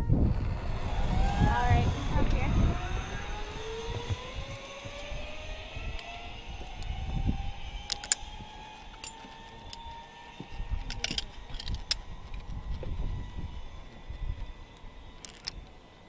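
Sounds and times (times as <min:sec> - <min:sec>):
zip line pulleys whining on cable: 0:00.0 - 0:16.0
metallic clinks of harness gear: 0:07.9 - 0:12.8, 0:15.2 - 0:15.7.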